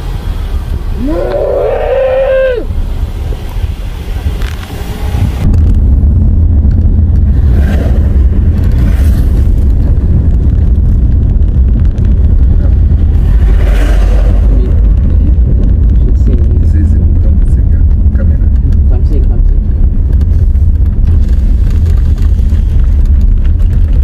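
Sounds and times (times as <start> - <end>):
road and wind noise in car: 0.0 - 24.0
truck passing: 11.2 - 15.9.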